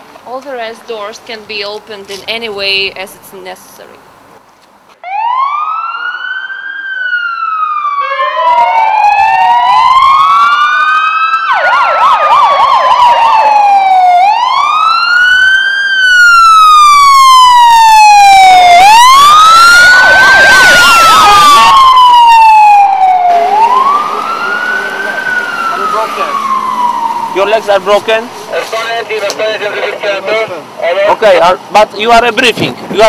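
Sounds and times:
siren fast yelp: 5.0s - 28.4s
fire engine sirens wailing: 5.0s - 31.6s.

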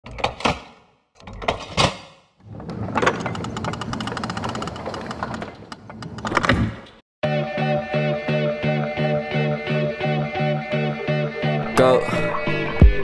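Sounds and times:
rapid stuttering clicks: 3.3s - 6.2s.

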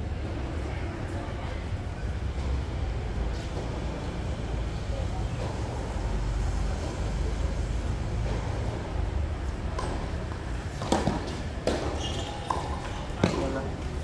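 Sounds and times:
tennis ball knocks: 10.8s - 13.6s.

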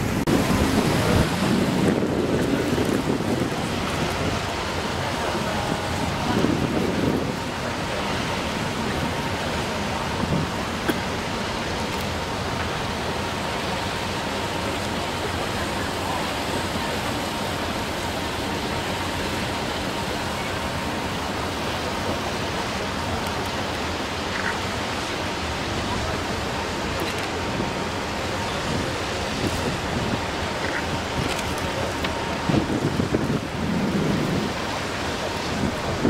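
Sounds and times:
wind on microphone: 0.0s - 10.9s, 26.0s - 36.0s.

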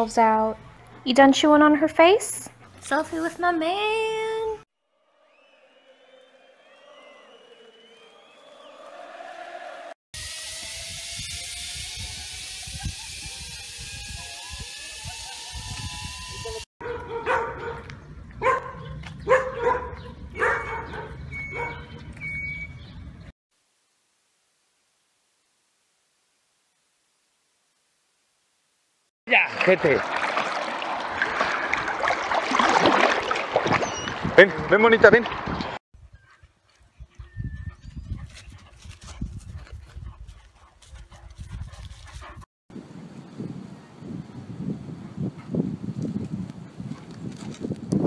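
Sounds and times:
dogs barking: 16.8s - 22.1s.

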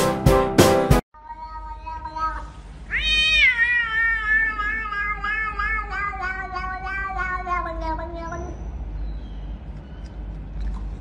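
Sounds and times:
cat meowing: 1.2s - 8.6s.

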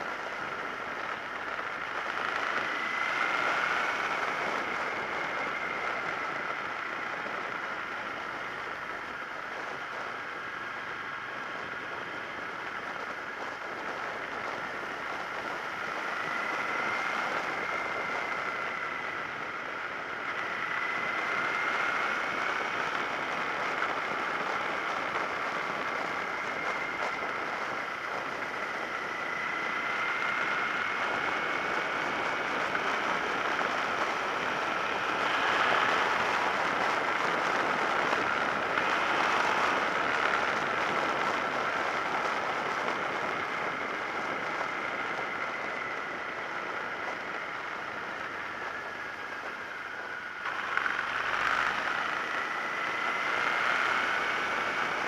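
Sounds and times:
steady high whine: 0.0s - 55.0s
wind rushing over microphone: 0.0s - 55.0s.

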